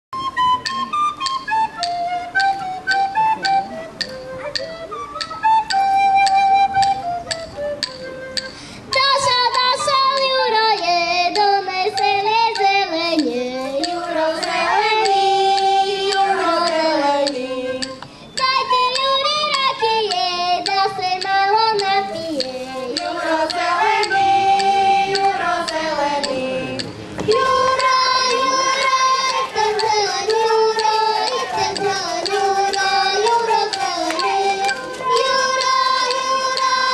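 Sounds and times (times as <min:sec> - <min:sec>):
girls singing together: 0:08.9 - 0:36.9.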